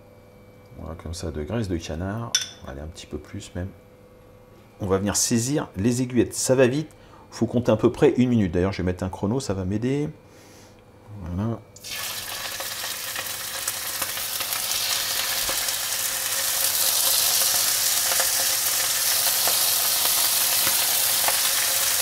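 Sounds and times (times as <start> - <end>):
meat sizzling in a frying pan: 11.8 - 22.0.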